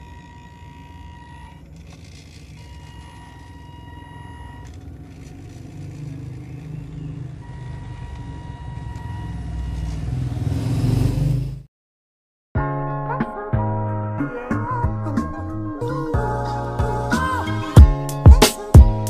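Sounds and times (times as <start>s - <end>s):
diesel truck engine revving: 0.0s - 11.7s.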